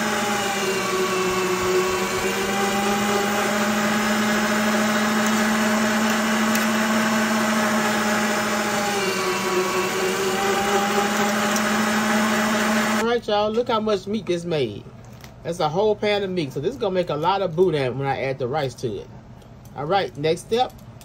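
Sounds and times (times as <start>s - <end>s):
electric meat grinder running: 0.0s - 13.0s.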